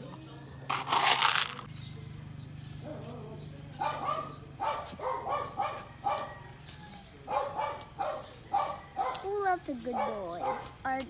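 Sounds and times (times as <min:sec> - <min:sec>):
puppy yipping and barking: 0:03.8 - 0:06.4, 0:07.3 - 0:09.3, 0:09.9 - 0:10.7.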